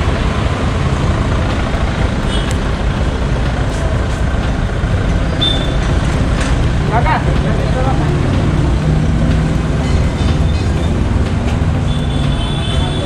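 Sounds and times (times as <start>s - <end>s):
road noise: 0.0s - 13.0s
vehicle engine rumble: 0.0s - 13.0s.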